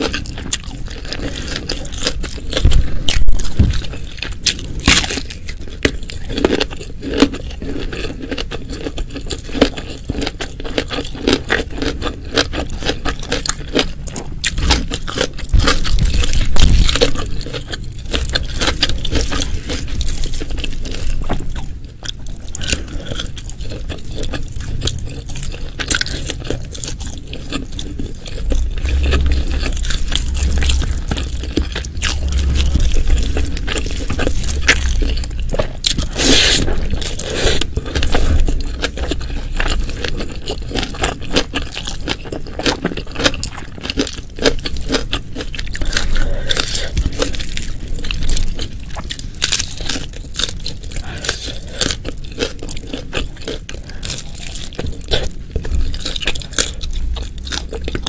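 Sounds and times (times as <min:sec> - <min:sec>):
person chewing and crunching food: 0:00.0 - 0:58.0
low rumble: 0:00.3 - 0:05.5, 0:14.6 - 0:42.0.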